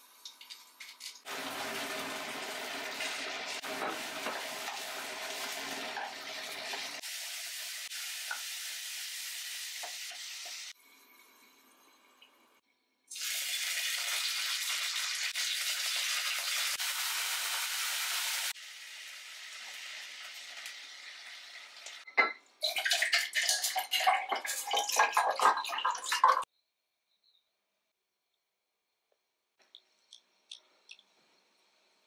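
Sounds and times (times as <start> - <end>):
food sizzling in a pan: 0.0 - 12.0, 13.1 - 22.1.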